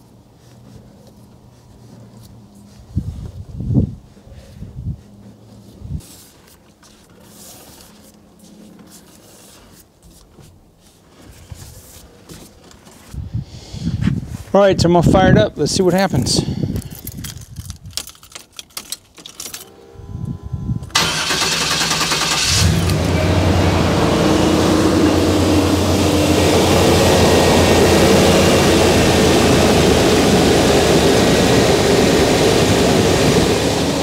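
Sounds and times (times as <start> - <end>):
truck engine starting and idling: 19.6 - 34.0.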